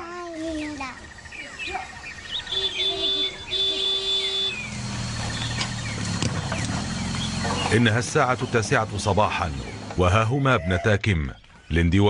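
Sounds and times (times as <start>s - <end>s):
small birds chirping: 0.0s - 12.0s
low engine hum: 2.4s - 10.0s.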